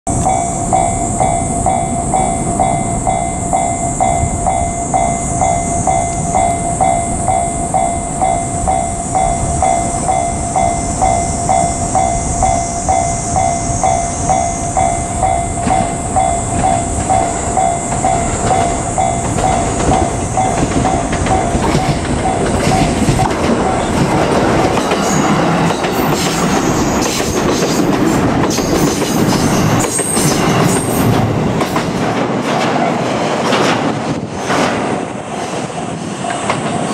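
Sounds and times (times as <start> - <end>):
level crossing bell ringing: 0.1 - 24.0
train running noise: 0.1 - 36.9
wheels clattering over rails: 14.2 - 35.0.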